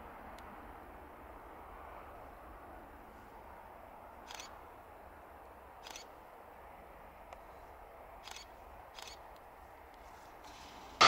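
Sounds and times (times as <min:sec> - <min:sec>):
distant jet engines: 0:00.0 - 0:11.0
camera shutter clicks: 0:04.3 - 0:04.5, 0:05.8 - 0:06.1, 0:08.2 - 0:09.2.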